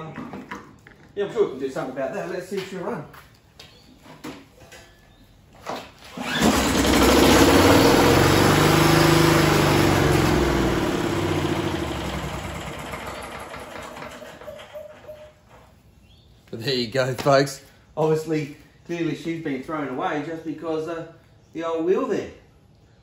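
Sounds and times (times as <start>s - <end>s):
recoil starter pull: 6.0s - 15.0s
lawnmower engine running: 6.0s - 15.2s.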